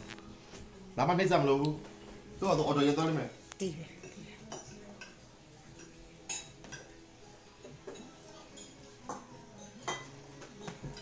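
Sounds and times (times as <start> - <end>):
faint background music: 0.0 - 11.0
utensils clinking against plates: 1.9 - 11.0.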